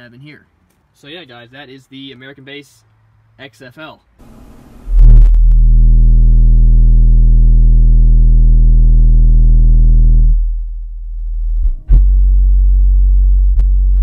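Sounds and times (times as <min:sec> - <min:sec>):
deep bass test tone: 0:04.8 - 0:14.0.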